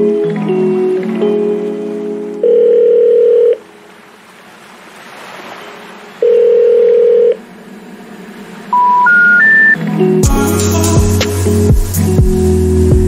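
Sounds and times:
electronic beep tones: 8.7 - 9.8.

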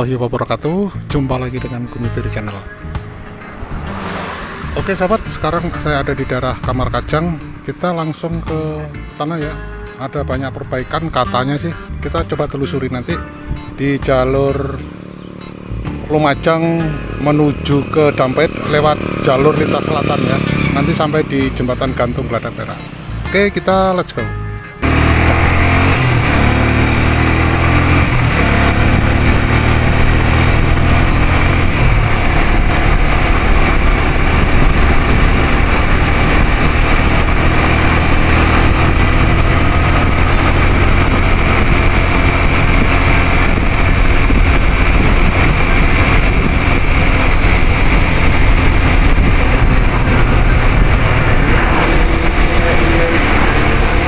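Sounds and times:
motorcycle engine running: 0.6 - 8.4, 11.8 - 54.0
wind rumble on microphone: 42.4 - 54.0.

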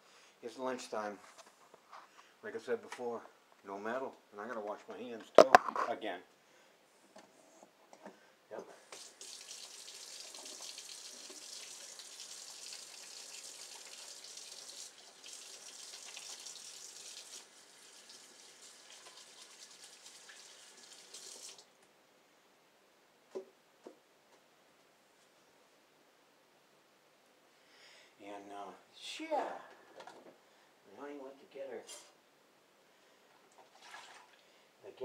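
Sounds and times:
faucet running water: 8.8 - 21.7.

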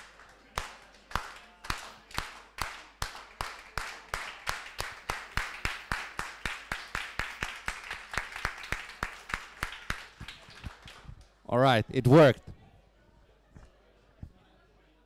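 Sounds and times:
people clapping in rhythm: 0.0 - 11.3.

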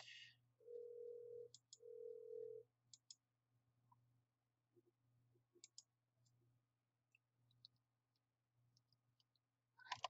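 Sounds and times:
computer mouse clicks: 2.9 - 3.2, 5.6 - 6.4, 7.5 - 10.0.

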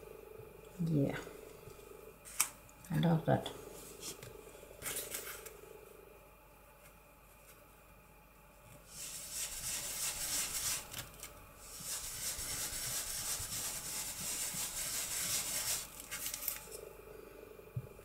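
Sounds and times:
foam tool scrubbing on paper: 8.9 - 11.0, 11.6 - 16.4.

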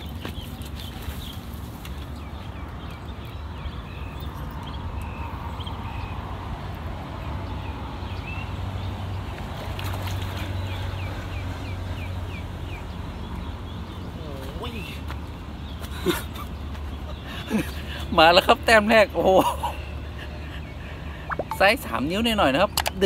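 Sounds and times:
small birds chirping: 10.5 - 23.0.

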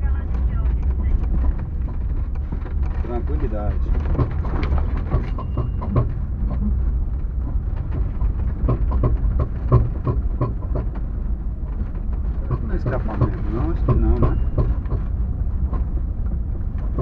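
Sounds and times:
vehicle rumbling on dirt road: 0.0 - 17.0
knocks and rattles from underneath: 0.3 - 17.0.

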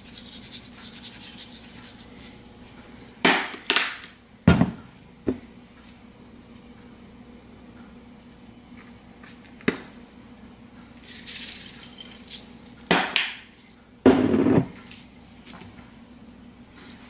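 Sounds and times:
seasoning shaken from shaker: 0.0 - 2.3, 11.0 - 12.7
shaker clatter: 0.0 - 2.3, 11.0 - 12.9
faint steady hum: 0.0 - 17.0.

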